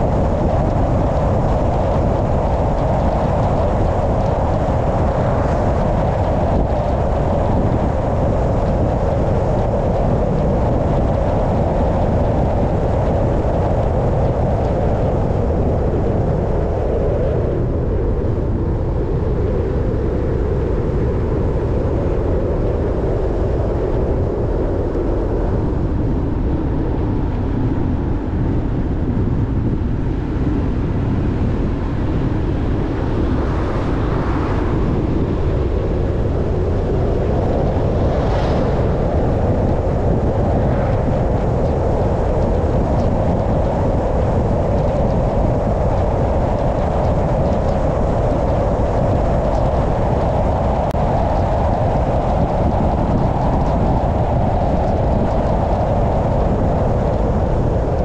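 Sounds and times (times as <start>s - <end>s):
road noise: 32.6s - 42.4s.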